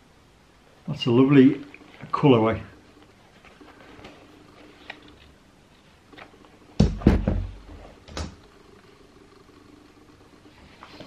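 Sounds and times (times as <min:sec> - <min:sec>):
heavy thumps: 0:06.8 - 0:08.4.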